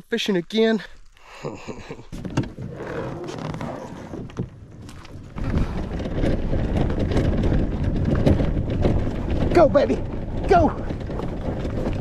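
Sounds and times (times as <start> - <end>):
kayak wheel rolling over grass: 0.0 - 12.0.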